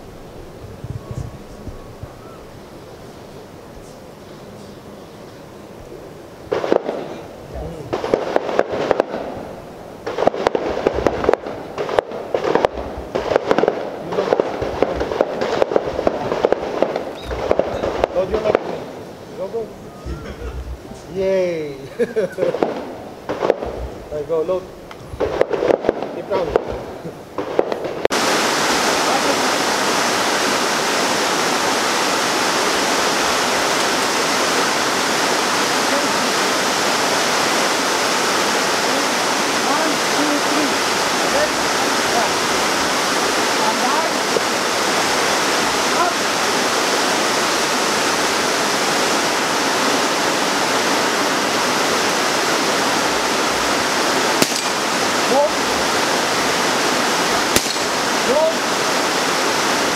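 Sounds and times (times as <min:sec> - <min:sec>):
heavy rain: 0:00.0 - 0:59.9
rapid gunfire: 0:06.5 - 0:07.2, 0:07.9 - 0:09.3, 0:10.0 - 0:18.8, 0:22.5 - 0:24.2, 0:25.2 - 0:28.2, 0:54.3 - 0:55.5, 0:57.5 - 0:58.4.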